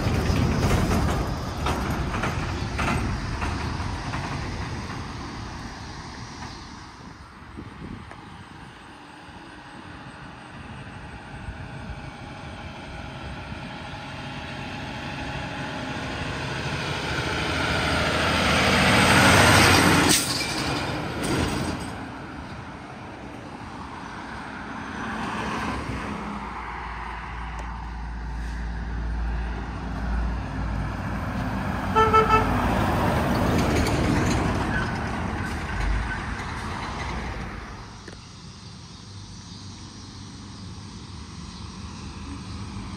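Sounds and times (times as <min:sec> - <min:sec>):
truck driving past: 0:00.0 - 0:42.9
vehicle approaching with low rumble: 0:00.0 - 0:42.9
vehicle horn toot: 0:31.9 - 0:32.6.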